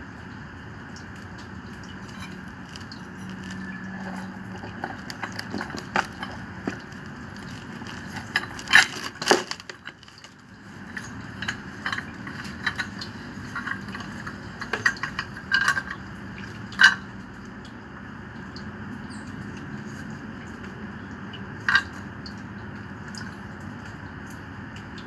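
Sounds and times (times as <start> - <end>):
metal pipe fittings clinking: 1.8 - 17.1, 21.7 - 22.0.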